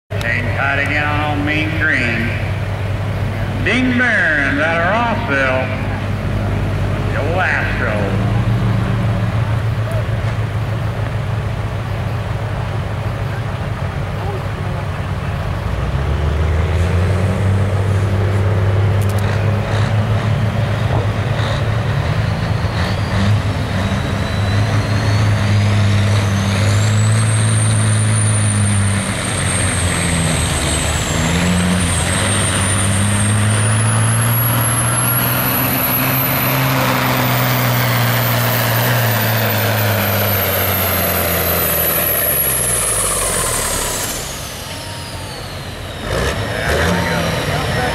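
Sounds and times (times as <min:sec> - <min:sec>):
diesel truck engine under load: 0:00.1 - 0:47.9
turbocharger whistle: 0:22.1 - 0:47.9.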